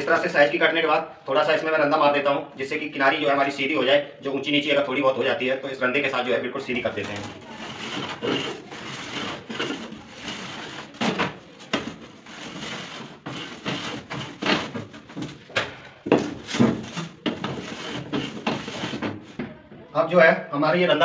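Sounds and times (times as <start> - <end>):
hand plane scraping metal edge: 7.4 - 14.7, 16.5 - 19.0.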